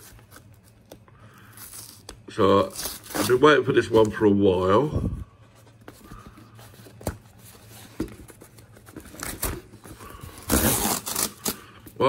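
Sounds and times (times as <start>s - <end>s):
cardboard tearing: 1.6s - 3.6s, 8.8s - 11.7s
cardboard rustling and tapping: 5.8s - 9.8s.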